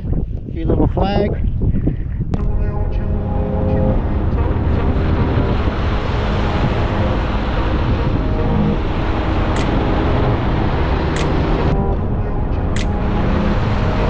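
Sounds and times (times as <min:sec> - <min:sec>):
wind rushing over microphone: 0:00.0 - 0:14.0
tyres on wet road: 0:03.1 - 0:14.0.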